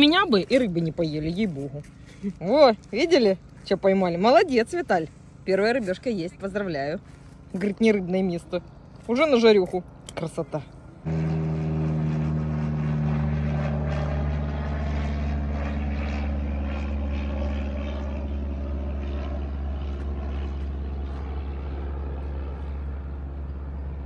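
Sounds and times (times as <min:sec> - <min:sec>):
propeller airplane engine drone: 0:00.0 - 0:24.0.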